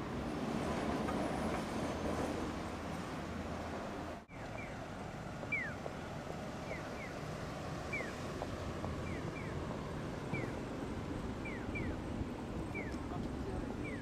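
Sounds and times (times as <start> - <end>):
street traffic rumble: 0.0 - 14.0
crossing signal chirping: 4.3 - 14.0.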